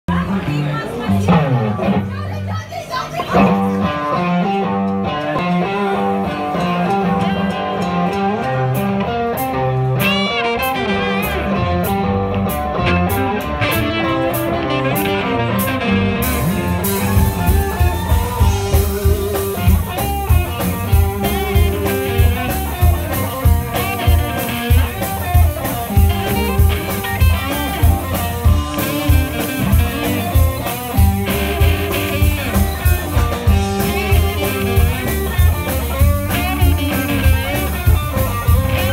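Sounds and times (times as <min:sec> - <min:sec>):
electric guitars playing: 0:00.1 - 0:38.9
drum kit beat: 0:03.1 - 0:38.9.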